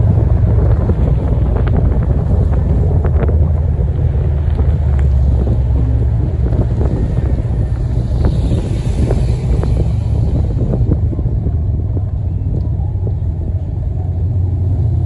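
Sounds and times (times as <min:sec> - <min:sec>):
car engine low rumble: 0:00.0 - 0:15.0
wind buffeting microphone: 0:00.0 - 0:15.0.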